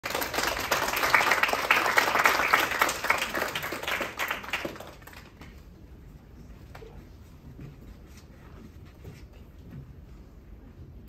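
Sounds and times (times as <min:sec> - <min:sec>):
audience applauding: 0:00.0 - 0:05.6.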